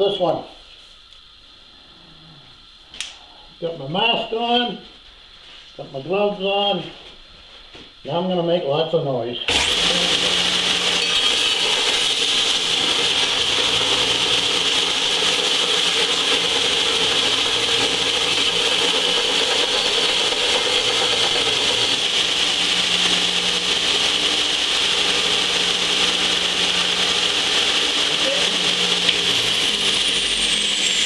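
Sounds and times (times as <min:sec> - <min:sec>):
belt sander grinding metal: 0:09.5 - 0:31.0.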